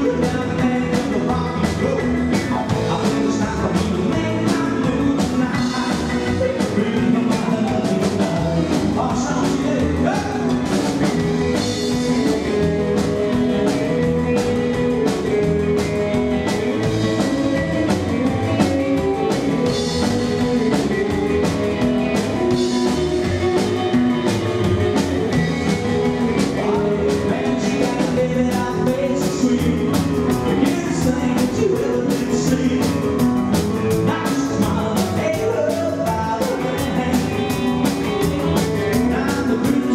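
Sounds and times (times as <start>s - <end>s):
double bass: 0.0s - 39.9s
drum kit: 0.0s - 39.9s.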